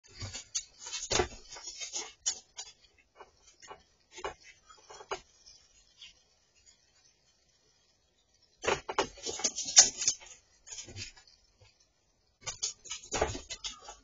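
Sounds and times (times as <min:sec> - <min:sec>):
squirrel scrabbling and clicking: 0:00.1 - 0:06.2, 0:08.6 - 0:11.8, 0:12.4 - 0:14.0.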